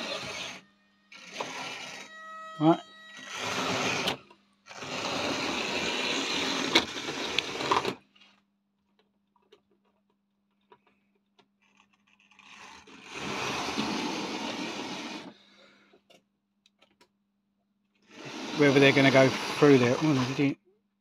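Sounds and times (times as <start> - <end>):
model train motor whirring: 0.0 - 8.0, 12.3 - 15.4, 18.1 - 20.6.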